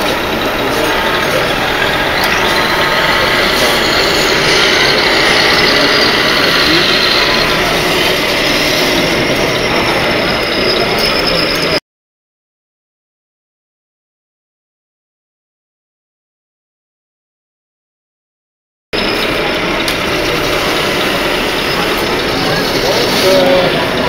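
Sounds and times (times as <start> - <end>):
constant background din: 0.0 - 11.8, 19.0 - 24.0
diesel truck engine sound: 0.0 - 11.8, 19.0 - 24.0.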